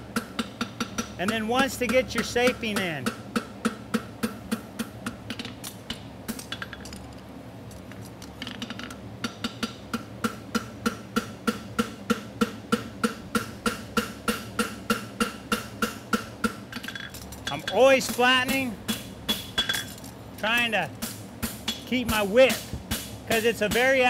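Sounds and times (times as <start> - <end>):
hammer ringing on anvil: 16.8 - 18.6.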